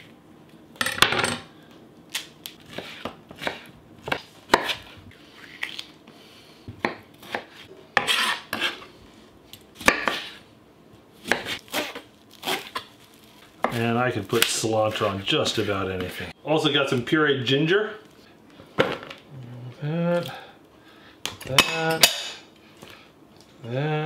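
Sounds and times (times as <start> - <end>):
knife scraping board: 2.7 - 5.0, 7.2 - 8.9, 9.9 - 10.4.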